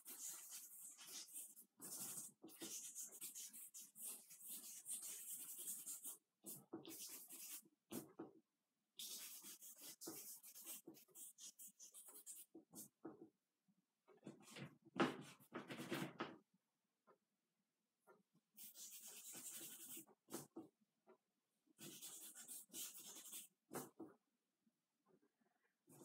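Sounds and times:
charcoal scratching on paper: 0.0 - 8.1, 9.0 - 13.0, 18.6 - 20.6, 21.8 - 24.0.

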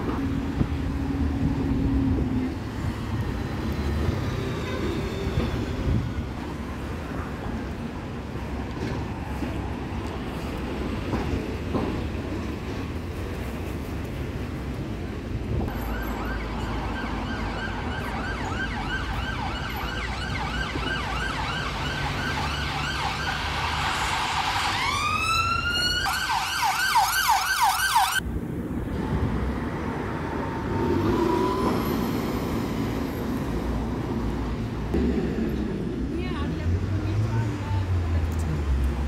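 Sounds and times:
road traffic noise: 0.0 - 39.0
ambulance siren yelping and wailing: 15.7 - 28.2.

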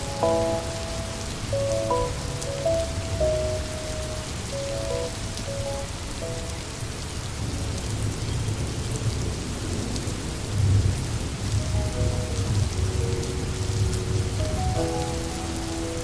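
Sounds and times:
steady rain falling: 0.0 - 16.0
low rumble of thunder: 6.8 - 15.6.

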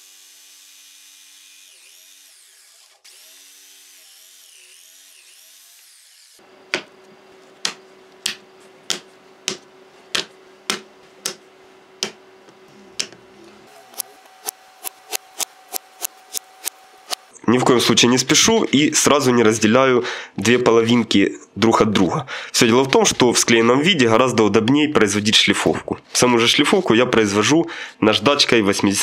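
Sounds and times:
electric jigsaw cutting wood: 0.0 - 6.4, 13.7 - 17.3.

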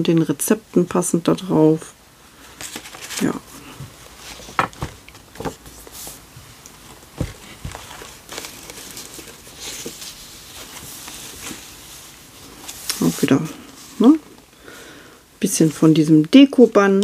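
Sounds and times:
paper pages rustling: 2.4 - 14.3.

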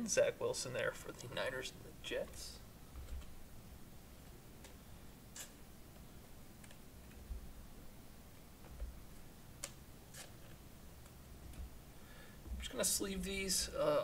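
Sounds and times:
soft clicks: 9.6 - 9.8.

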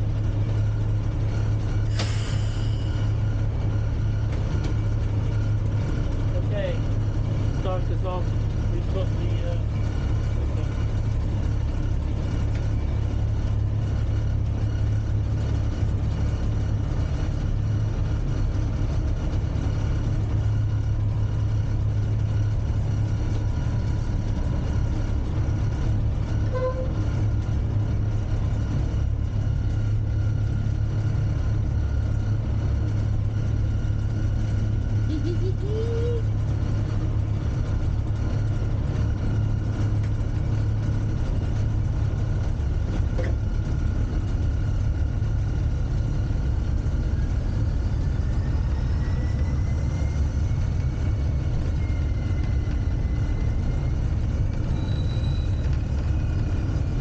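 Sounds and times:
diesel locomotive engine drone: 0.0 - 57.0
rising squeal: 1.7 - 5.6, 46.8 - 57.0.

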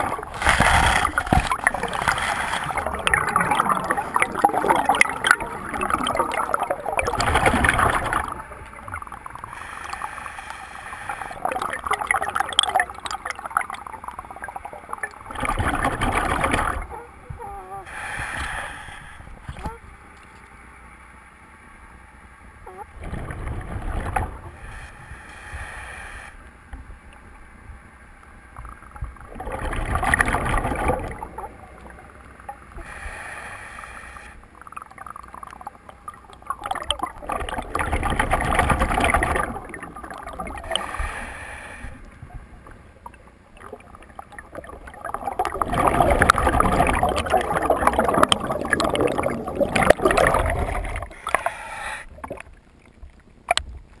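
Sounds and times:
bubbling exhalation underwater: 0.0 - 9.5, 11.1 - 17.6, 29.3 - 32.2, 34.6 - 41.0, 42.5 - 51.4.

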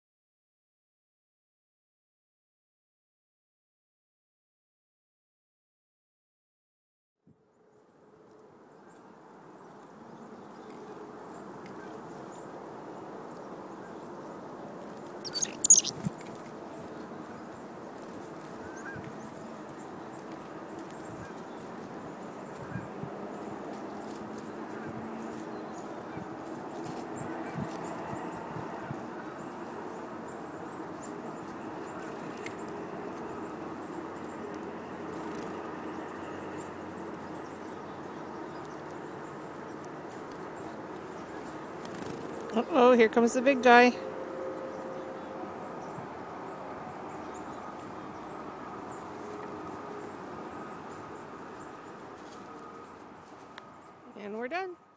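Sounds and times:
waterfowl calling: 15.3 - 15.9.

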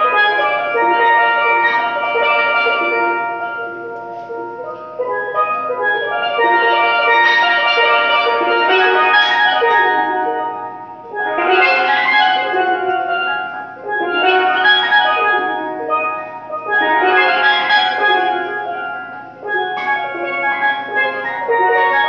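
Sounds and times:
steelpan rolled chords: 0.0 - 22.0.

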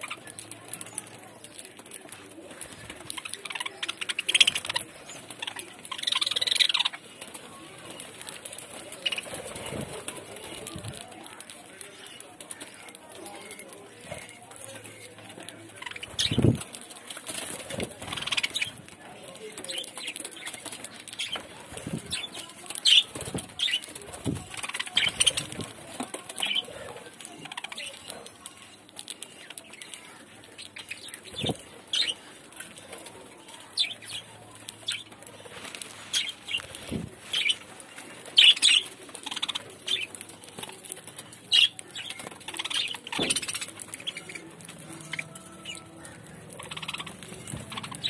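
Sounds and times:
birds pecking stems: 0.0 - 48.0
wing flutters: 15.8 - 18.9
leaves rustling: 35.3 - 38.4.

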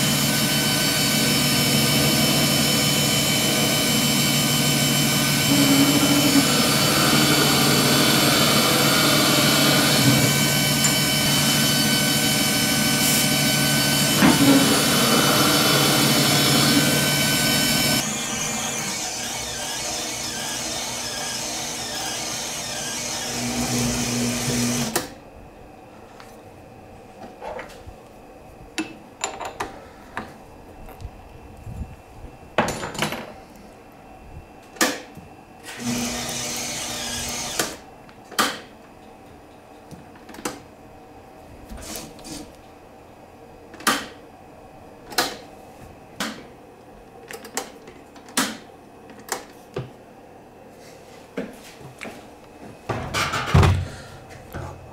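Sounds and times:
metal lathe whining: 0.0 - 25.0, 35.7 - 37.8.

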